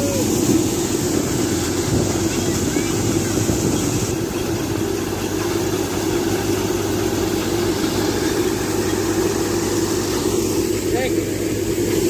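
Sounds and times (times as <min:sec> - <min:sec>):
thresher mechanical drone: 0:00.0 - 0:12.0.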